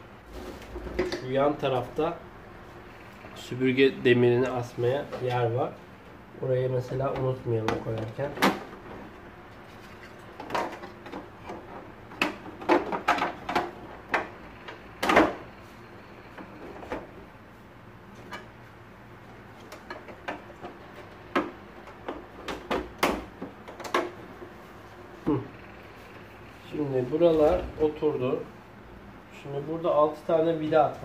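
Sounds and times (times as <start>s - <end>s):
plastic parts clicking and knocking: 10.0s - 15.5s, 19.6s - 24.3s.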